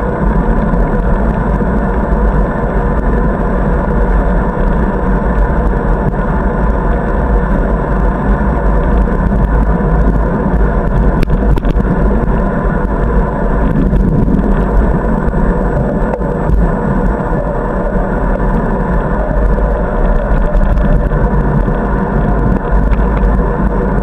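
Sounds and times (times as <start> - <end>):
wind rumble on microphone: 0.0 - 24.0.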